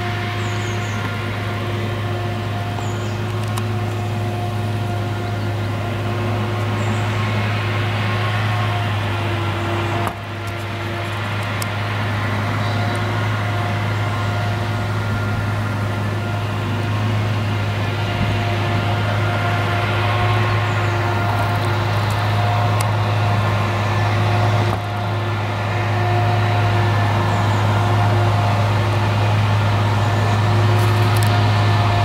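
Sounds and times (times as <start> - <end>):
forage harvester droning: 0.0 - 32.0.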